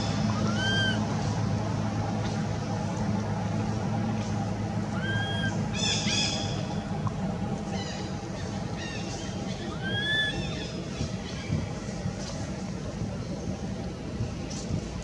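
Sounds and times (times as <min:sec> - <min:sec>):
steady low hum: 0:00.0 - 0:15.0
high squeaky animal calls: 0:00.4 - 0:01.1, 0:05.0 - 0:06.4, 0:09.6 - 0:10.7.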